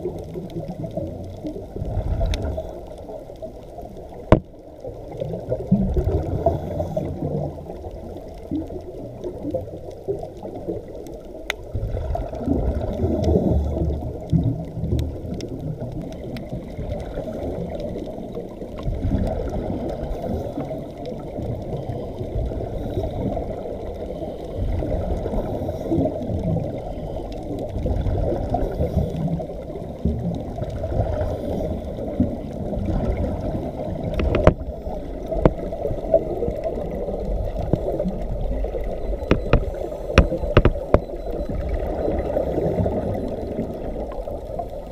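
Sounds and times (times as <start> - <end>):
underwater bubbles and gurgling: 0.0 - 44.9
sharp clicks: 39.2 - 41.4.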